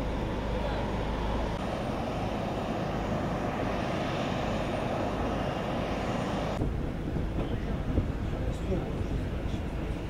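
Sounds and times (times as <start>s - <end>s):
aircraft engine running: 0.0s - 10.0s.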